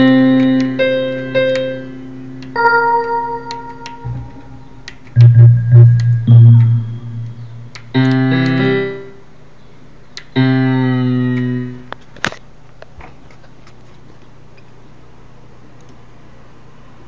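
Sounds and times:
electric piano notes: 0.0s - 9.2s.

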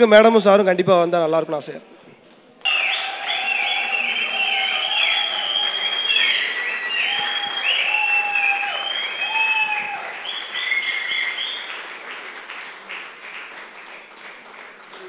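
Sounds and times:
audience applauding: 2.6s - 15.0s
cries and whoops: 2.7s - 10.9s.

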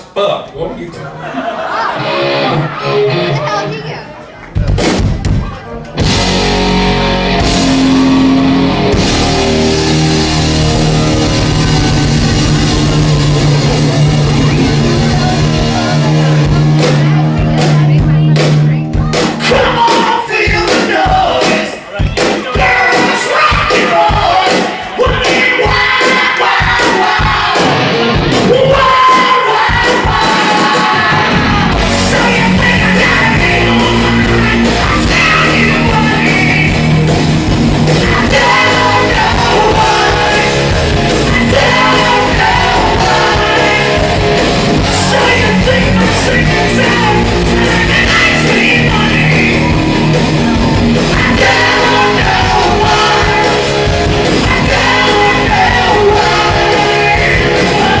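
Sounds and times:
live rock band: 1.4s - 58.0s
lead singer singing: 19.0s - 37.0s, 37.9s - 58.0s.

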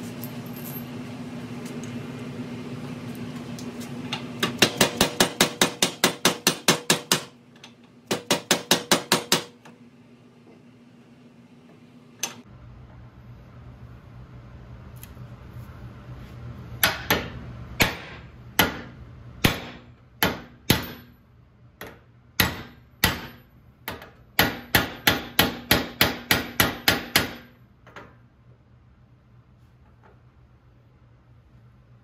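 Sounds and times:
hammer striking metal: 4.4s - 7.4s, 8.1s - 9.6s, 16.8s - 21.2s, 21.8s - 27.6s.

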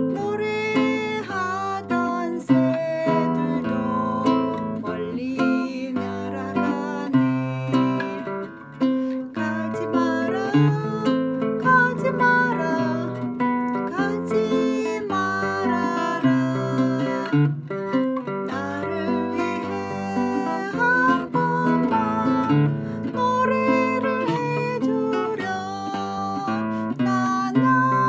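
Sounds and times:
classical guitar fingerpicking: 0.0s - 28.0s.

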